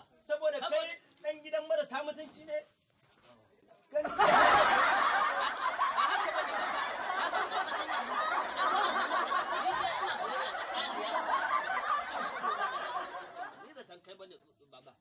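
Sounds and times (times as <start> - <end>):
crowd laughing: 4.0 - 13.8.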